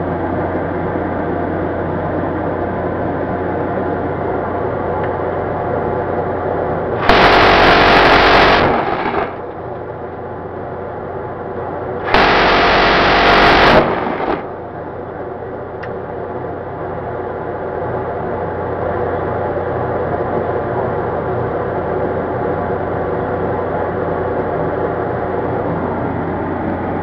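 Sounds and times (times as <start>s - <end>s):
low hum: 0.0s - 17.7s
minigun firing: 7.0s - 9.6s, 12.0s - 14.6s.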